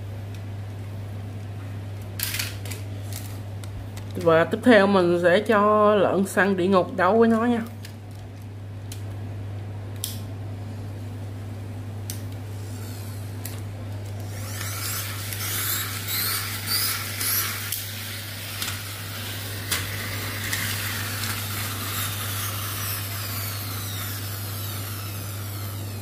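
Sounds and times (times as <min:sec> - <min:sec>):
toy spring motors whirring: 0:12.6 - 0:26.0.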